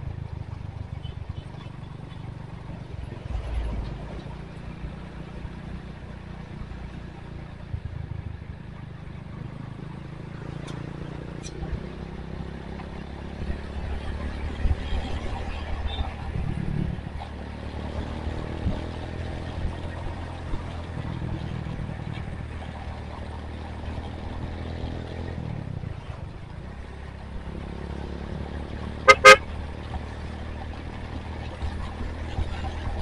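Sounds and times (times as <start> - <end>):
motorcycle engine running: 0.0 - 33.0
horn toots: 29.0 - 29.5.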